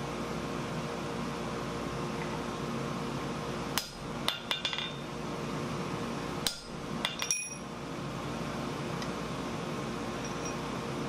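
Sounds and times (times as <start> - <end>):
steady hum: 0.0 - 11.0
hammer striking punch on anvil: 3.8 - 5.0, 6.4 - 7.6.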